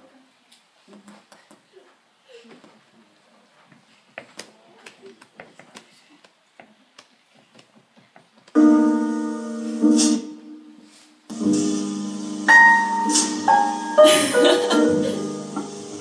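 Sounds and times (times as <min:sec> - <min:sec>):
keyboard chord ringing: 0:12.5 - 0:16.0.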